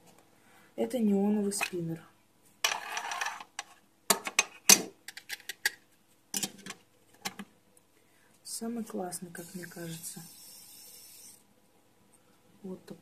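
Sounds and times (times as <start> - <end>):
tin scraping rustle: 2.7 - 3.5.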